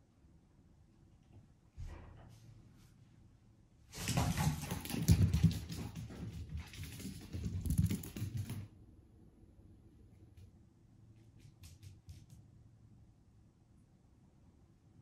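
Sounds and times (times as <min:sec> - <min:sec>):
paws pattering on wooden floor: 0:04.0 - 0:08.7.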